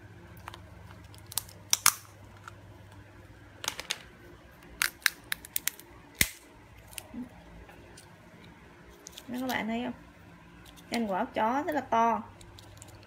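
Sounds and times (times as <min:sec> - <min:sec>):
walnut shell cracking in nutcracker: 0:00.4 - 0:02.6, 0:04.7 - 0:07.1
shell snapping and clicking: 0:00.4 - 0:03.0, 0:04.7 - 0:07.1.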